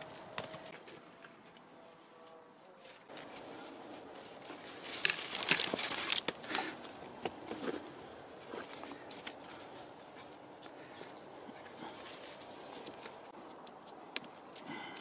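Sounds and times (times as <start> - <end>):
rustling of sticks and litter: 0.0 - 15.0.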